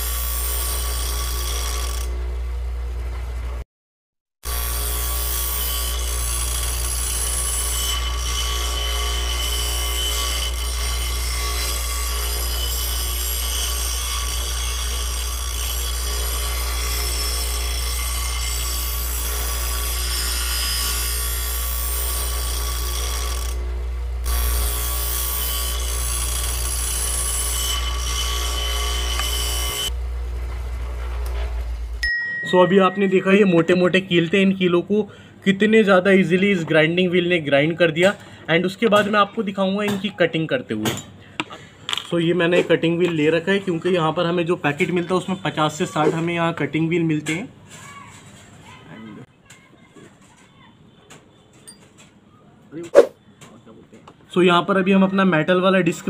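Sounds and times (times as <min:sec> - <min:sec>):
die grinder grinding nails: 0:00.0 - 0:02.2, 0:04.5 - 0:29.9.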